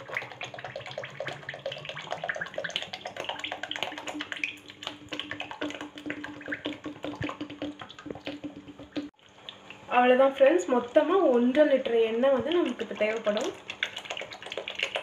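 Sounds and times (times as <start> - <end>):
oil pouring and splashing: 0.0 - 9.6
boiling paste popping and crackling: 0.0 - 9.9, 10.6 - 15.0.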